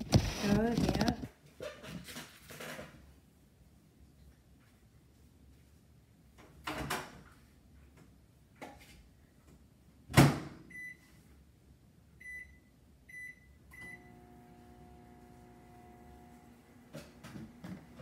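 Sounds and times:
microwave humming: 13.1 - 18.0.

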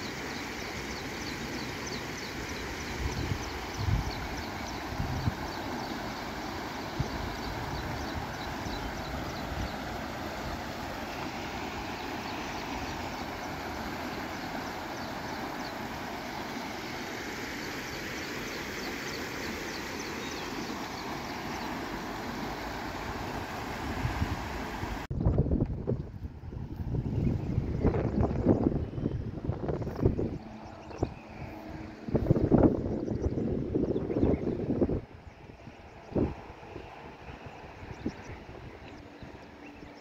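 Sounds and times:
floodwater rushing: 0.0 - 25.1.

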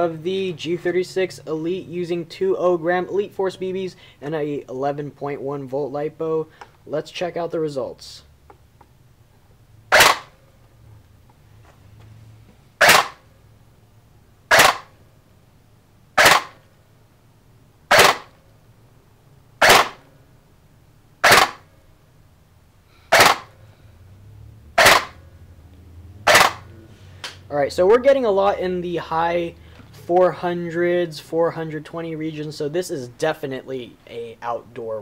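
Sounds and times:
airsoft rifle firing sharp cracks: 9.9 - 10.4, 12.8 - 13.2, 14.5 - 15.0, 16.2 - 16.7, 17.9 - 18.4, 19.6 - 20.1, 21.2 - 21.7, 23.1 - 23.6, 24.8 - 25.2, 26.3 - 26.7.

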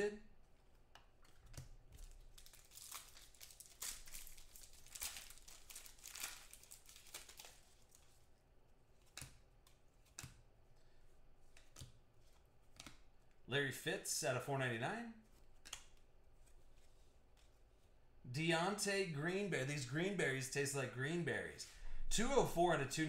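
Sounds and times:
wrapper crinkling and tearing: 2.0 - 8.2.

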